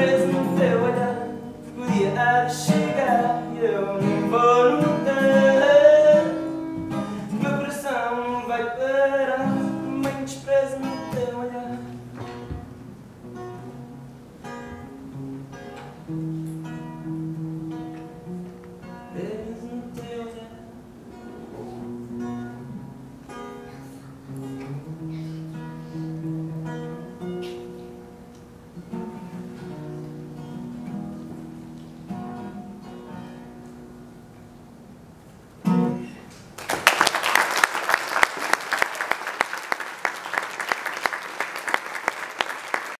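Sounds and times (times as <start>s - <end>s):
acoustic guitar picking: 0.0s - 36.4s
audience applause: 36.6s - 43.0s.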